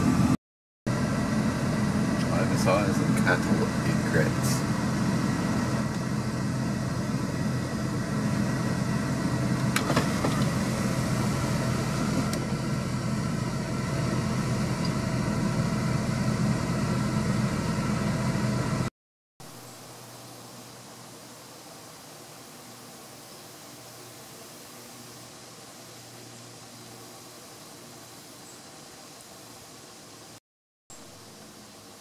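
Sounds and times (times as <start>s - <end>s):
vehicle engine idling: 0.0s - 18.9s.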